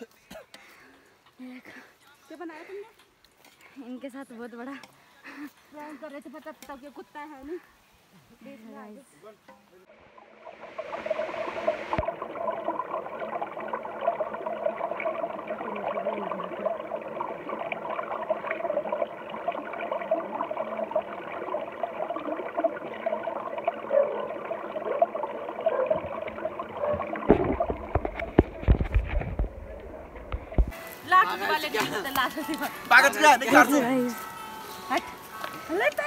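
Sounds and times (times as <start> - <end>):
stream gurgling over stones: 9.9 - 31.0
low rumbling knocks: 27.2 - 30.8.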